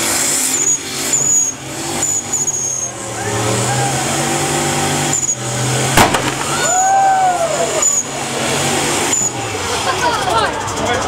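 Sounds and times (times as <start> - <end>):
engine at high revs: 0.0 - 11.0
sharp crack: 6.0 - 7.3.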